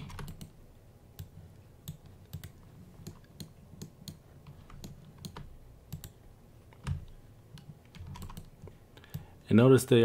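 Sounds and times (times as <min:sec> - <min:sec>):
keyboard and mouse clicks: 0:00.0 - 0:00.6, 0:01.2 - 0:09.3.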